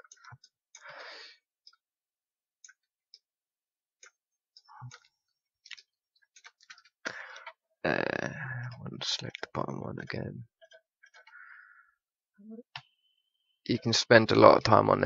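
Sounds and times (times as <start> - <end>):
keyboard and mouse clicks: 4.0 - 7.6, 10.6 - 11.6.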